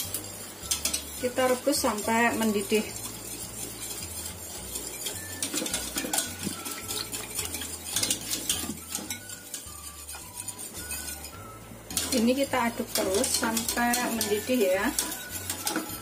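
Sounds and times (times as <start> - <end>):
whisk scraping a metal pot: 0.0 - 16.0.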